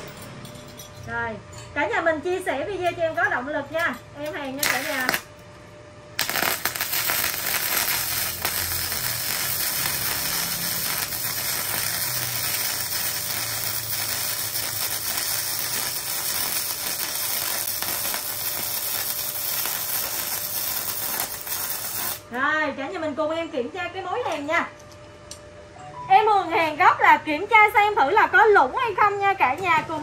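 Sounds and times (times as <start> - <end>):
welding arc crackling sizzle: 3.2 - 5.4, 6.2 - 22.4.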